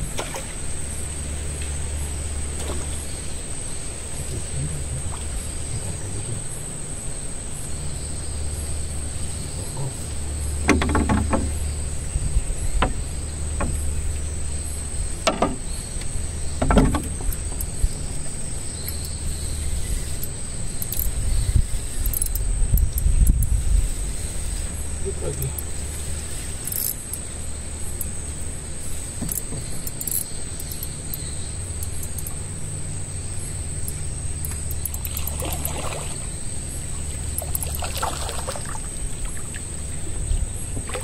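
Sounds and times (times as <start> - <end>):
insect trill: 0.0 - 41.0
knocks and rattles: 10.5 - 14.1, 15.1 - 17.8.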